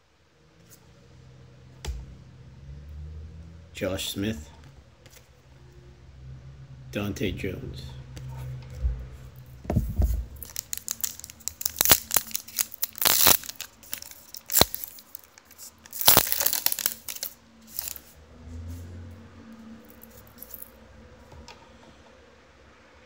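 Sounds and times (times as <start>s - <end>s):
trading cards clicking and rustling: 9.7s - 18.1s, 19.9s - 20.7s.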